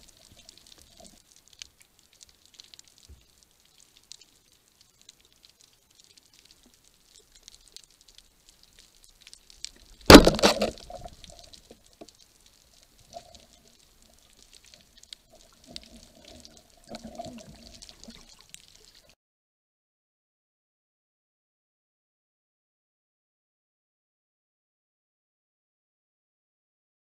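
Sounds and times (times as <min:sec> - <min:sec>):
underwater crackling and clicking: 0:00.0 - 0:19.2
speargun firing clack: 0:10.1 - 0:10.8.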